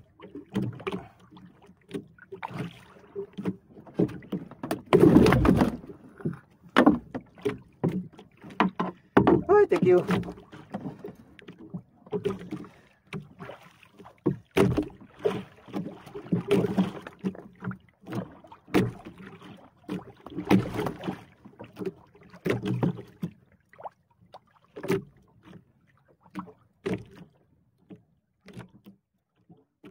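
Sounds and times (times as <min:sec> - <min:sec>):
water slapping against hull: 0:00.0 - 0:29.9
knocks on boat: 0:03.4 - 0:11.1, 0:14.3 - 0:15.0.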